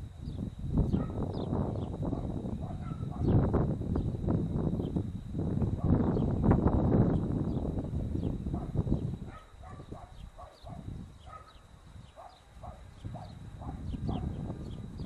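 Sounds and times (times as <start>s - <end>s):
low rumbling on microphone: 0.0s - 15.0s.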